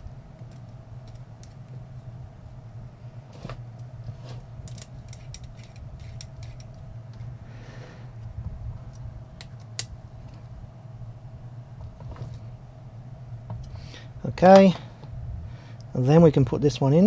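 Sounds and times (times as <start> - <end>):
low steady hum: 0.0 - 17.0
screwdriver clicking on metal: 4.7 - 7.2.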